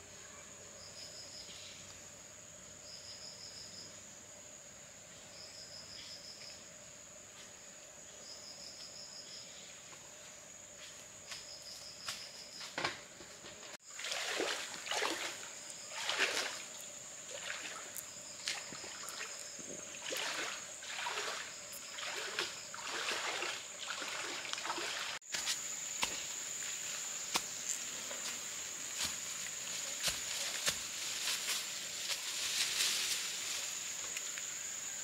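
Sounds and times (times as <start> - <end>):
high insect trill: 0.0 - 35.0
water splashing: 13.8 - 25.2.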